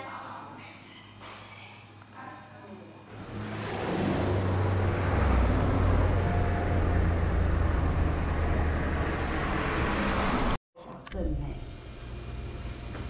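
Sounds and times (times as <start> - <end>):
low engine rumble: 3.1 - 10.6.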